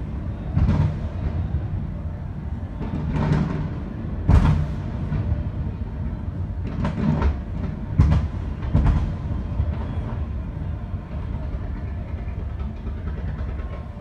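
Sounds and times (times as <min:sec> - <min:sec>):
low rumble of bursts: 0:00.0 - 0:14.0.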